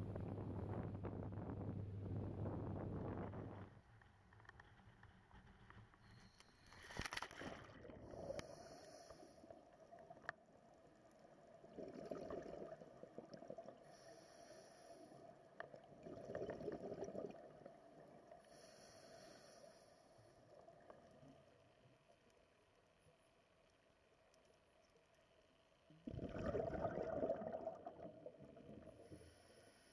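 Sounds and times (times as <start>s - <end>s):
diver breathing through regulator: 8.1s - 9.5s, 13.8s - 15.2s, 18.4s - 20.2s
faint clicks: 9.1s - 10.4s, 20.5s - 25.8s
exhaled bubbles rushing: 11.4s - 13.9s, 15.7s - 18.3s, 26.0s - 29.0s.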